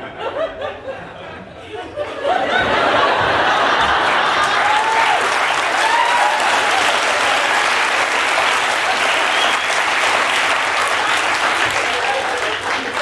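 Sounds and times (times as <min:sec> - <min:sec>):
studio audience applauding: 0:03.3 - 0:13.0.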